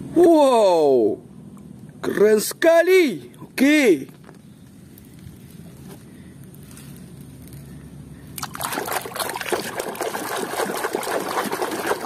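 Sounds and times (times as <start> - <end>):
water splashing in a basin: 8.4 - 12.0.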